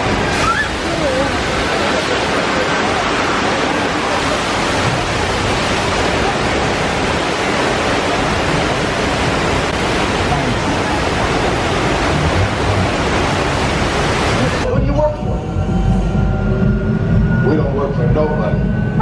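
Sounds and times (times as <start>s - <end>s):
water gushing and splashing: 0.0s - 14.7s.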